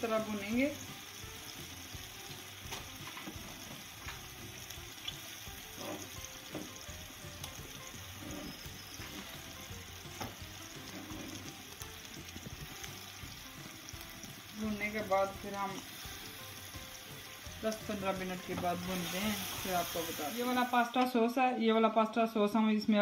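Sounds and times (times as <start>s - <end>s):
chicken sizzling in pot: 0.0s - 21.0s
wooden spatula scraping pot: 5.6s - 6.2s, 8.0s - 9.4s, 10.7s - 11.6s.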